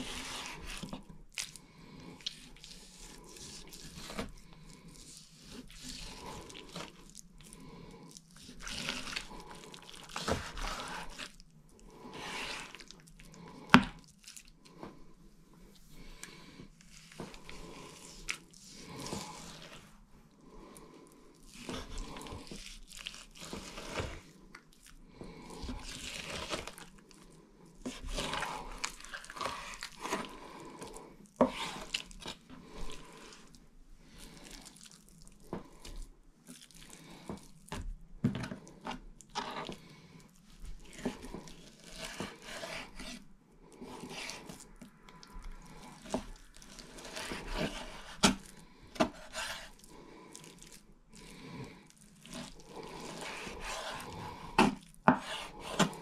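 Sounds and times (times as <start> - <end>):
knife slicing meat on board: 53.0 - 56.0.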